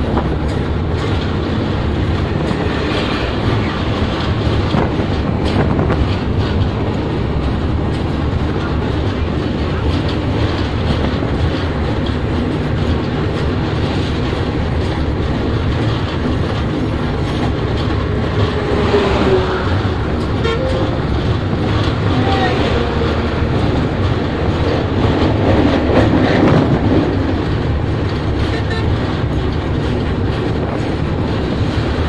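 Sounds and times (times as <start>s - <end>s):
train wheels rumbling on rails: 0.0s - 32.0s.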